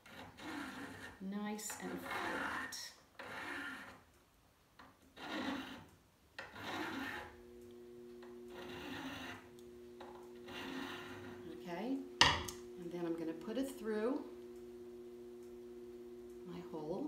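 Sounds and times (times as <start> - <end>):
file rasping on metal tube: 0.0 - 4.0, 5.2 - 7.4, 8.5 - 9.6, 10.4 - 11.5
faint steady hum: 0.0 - 17.0.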